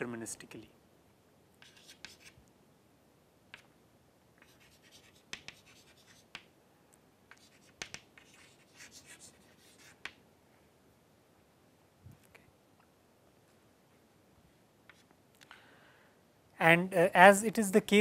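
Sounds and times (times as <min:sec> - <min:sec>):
chalk scratching on chalkboard: 0:01.6 - 0:02.4, 0:04.4 - 0:06.5, 0:07.3 - 0:10.2, 0:14.9 - 0:15.1
chalk tapping on board: 0:01.6 - 0:02.4, 0:04.4 - 0:06.5, 0:07.3 - 0:10.2, 0:14.9 - 0:15.1.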